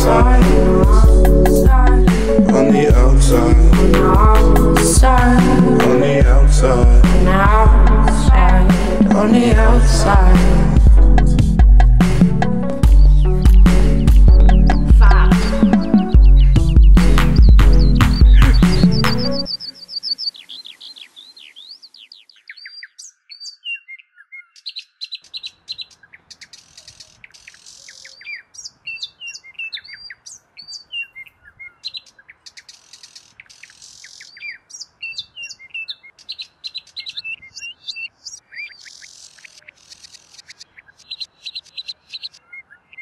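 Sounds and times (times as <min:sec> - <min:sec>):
small birds chirping: 0:10.9 - 0:43.0.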